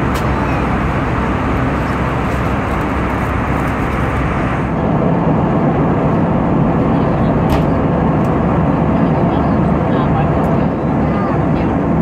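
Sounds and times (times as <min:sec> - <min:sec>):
rushing air: 0:00.0 - 0:06.9
jet engine rumble in cabin: 0:00.0 - 0:12.0.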